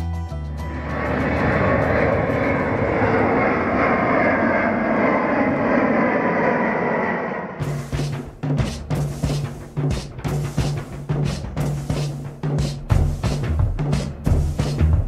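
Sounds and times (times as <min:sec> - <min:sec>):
jet airliner passing overhead: 0:00.5 - 0:07.9.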